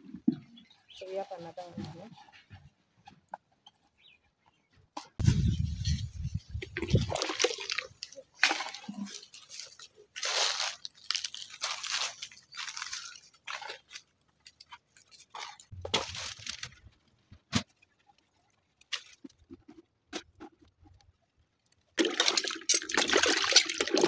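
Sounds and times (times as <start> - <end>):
water sloshing and swishing: 5.2 - 17.0, 22.0 - 24.0
water splashing in bucket: 5.8 - 14.0, 22.0 - 24.0.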